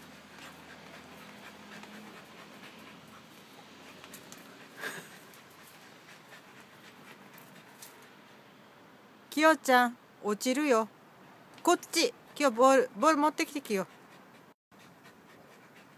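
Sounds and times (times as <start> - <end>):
dog panting: 0.0 - 8.4, 12.1 - 15.9.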